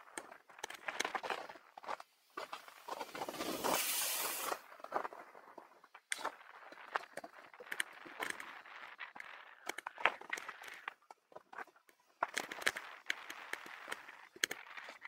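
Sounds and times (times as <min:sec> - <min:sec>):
bicycle clicks and rattles: 0:00.0 - 0:15.0
tyre hiss: 0:03.0 - 0:04.6.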